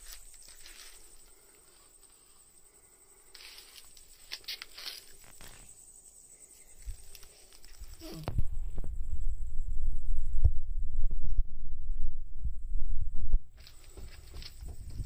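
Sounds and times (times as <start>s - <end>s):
low cat call: 7.9s - 8.4s
cat moving taps and scuffs: 13.6s - 15.0s.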